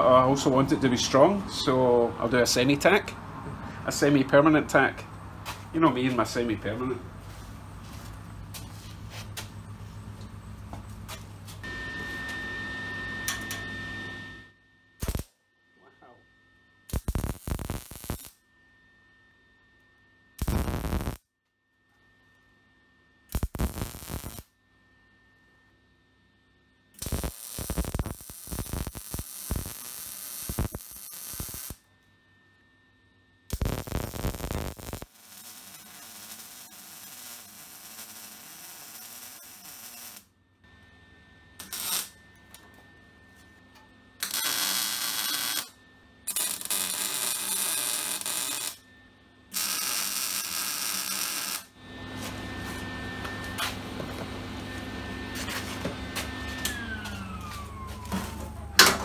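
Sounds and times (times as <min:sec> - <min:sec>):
faint hum: 0:00.0 - 0:59.0
welding arc crackling: 0:15.0 - 0:15.4, 0:16.9 - 0:18.4, 0:20.4 - 0:21.2, 0:23.3 - 0:24.5, 0:27.0 - 0:31.8, 0:33.5 - 0:40.3, 0:41.6 - 0:42.2, 0:44.2 - 0:48.8, 0:49.5 - 0:51.8.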